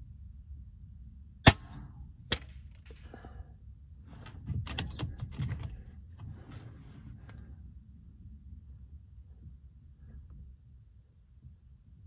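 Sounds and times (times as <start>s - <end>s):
air rifle shot: 1.4s - 2.5s
rifle handling clicks and rustling: 2.3s - 3.1s, 4.2s - 6.3s.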